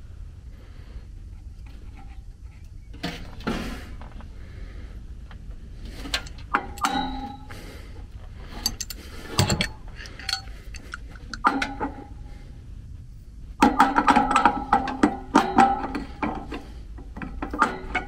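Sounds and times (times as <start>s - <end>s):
tools clanking against metal hub: 6.0s - 7.6s, 8.5s - 12.1s, 13.6s - 18.0s.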